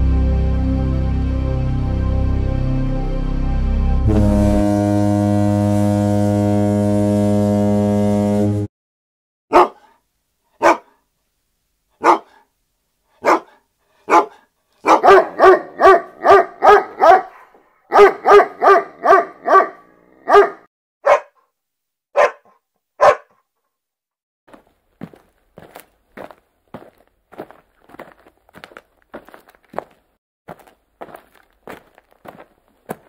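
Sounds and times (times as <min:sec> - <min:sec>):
dog barking: 0:09.5 - 0:11.0, 0:12.0 - 0:12.5, 0:13.2 - 0:21.5, 0:22.1 - 0:23.4.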